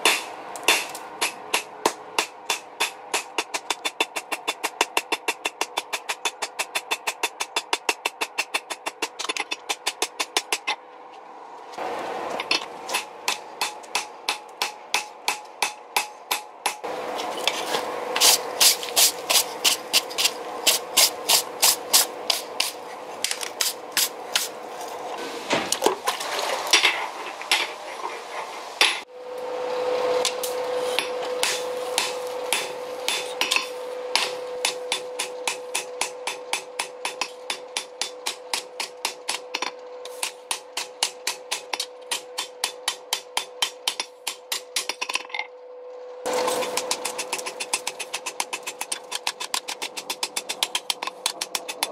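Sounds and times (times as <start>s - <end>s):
hammer striking steel on anvil: 0.0s - 10.8s, 12.4s - 16.9s, 30.2s - 45.2s.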